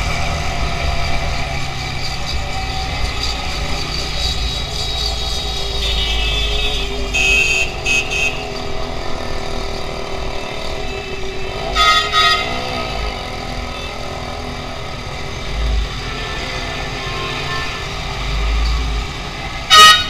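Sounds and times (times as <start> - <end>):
traffic engines rumbling: 0.0 - 20.0
vehicle horn honks: 5.8 - 8.5, 11.7 - 12.8, 19.7 - 20.0.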